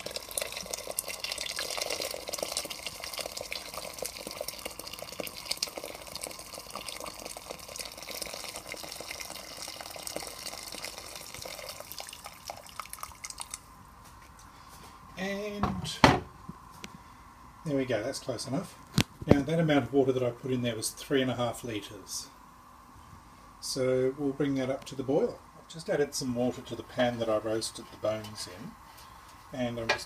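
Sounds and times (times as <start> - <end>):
water pouring into a pot: 0.0 - 13.7.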